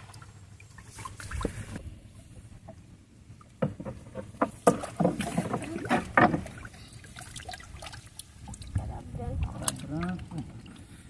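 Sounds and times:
knocks and clatter against canoe: 2.6 - 7.0.

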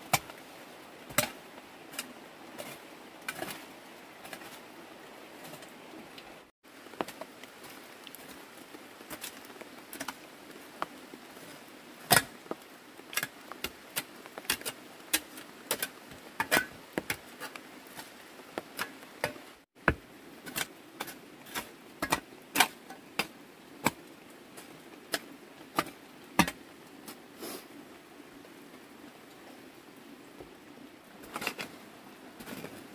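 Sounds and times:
hand hoe chopping dirt: 1.1 - 3.6, 12.1 - 12.3, 13.1 - 17.6, 18.6 - 24.0, 25.8 - 26.6.

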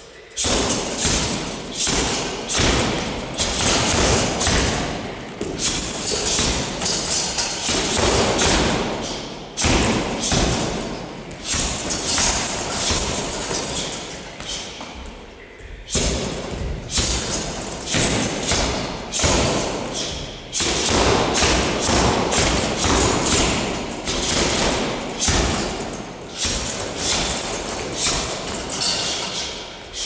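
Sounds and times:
punches thudding into heavy bag: 0.4 - 13.6.

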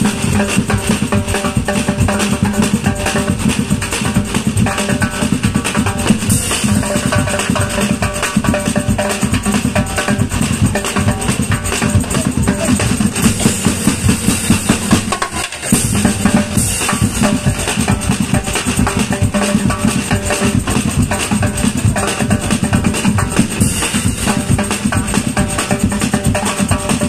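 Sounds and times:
drum band playing fast beat: 0.0 - 27.0.

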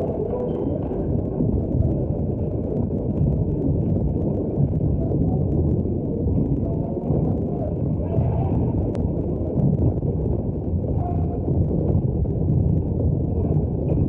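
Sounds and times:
faint crackles: 0.0 - 14.0
muffled crowd hubbub: 5.0 - 9.5.

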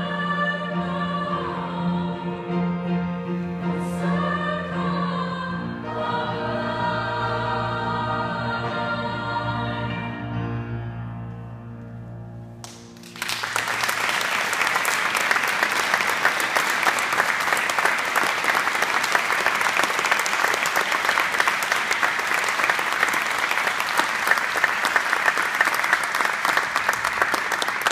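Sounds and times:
audience applauding: 12.6 - 27.9.

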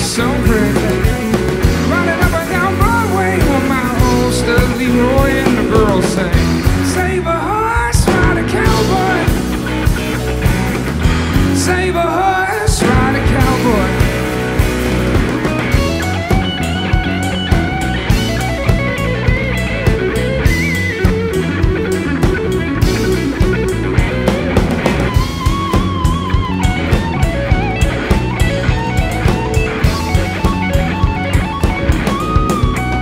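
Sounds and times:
drum beat: 0.0 - 7.1, 7.8 - 11.8, 12.7 - 33.0
bass guitar: 0.0 - 33.0
electric guitar solo: 12.2 - 33.0.

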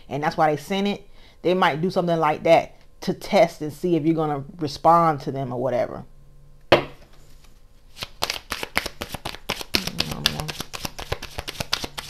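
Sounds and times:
cards being shuffled: 7.3 - 12.0.

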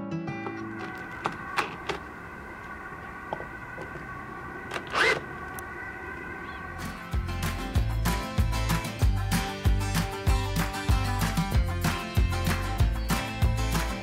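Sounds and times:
cordless drill boring into wood: 4.7 - 5.2.

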